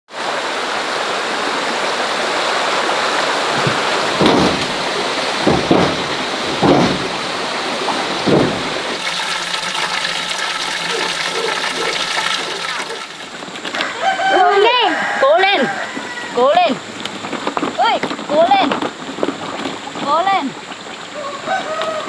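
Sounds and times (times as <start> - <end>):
running water rushing: 0.1 - 13.9
dull thumps: 3.5 - 13.0.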